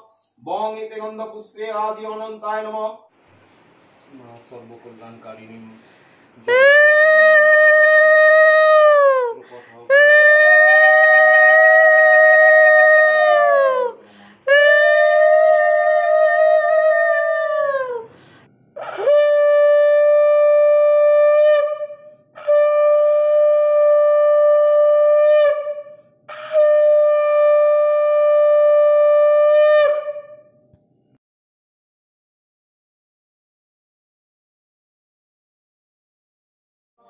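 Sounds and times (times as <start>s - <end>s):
conch shell blasts: 18.8s - 30.6s.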